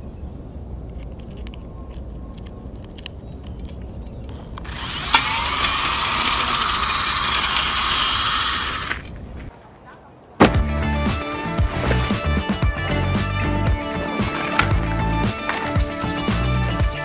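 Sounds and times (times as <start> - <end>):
drill motor whining: 4.6 - 9.1.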